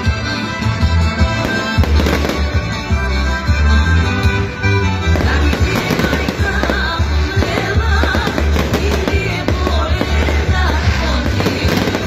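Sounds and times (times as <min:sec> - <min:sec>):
fireworks bursting and crackling: 0:01.3 - 0:02.9, 0:05.0 - 0:12.0
music with heavy bass beat: 0:05.0 - 0:12.0
person singing: 0:05.2 - 0:12.0.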